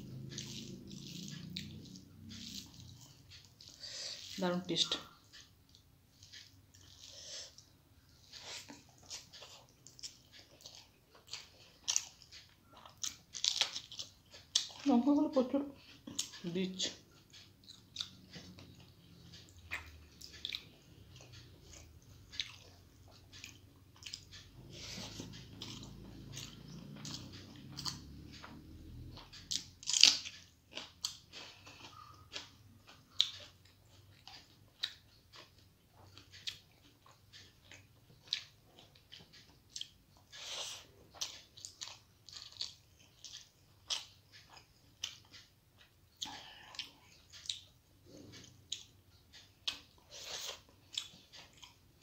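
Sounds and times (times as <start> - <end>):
fingers mixing rice on a plate: 0.0 - 14.9
chewing and mouth clicks: 0.0 - 15.0, 15.7 - 52.0.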